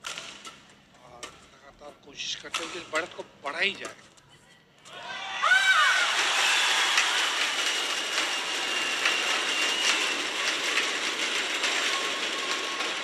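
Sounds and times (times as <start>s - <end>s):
crowd cheering and clapping: 4.9s - 13.0s.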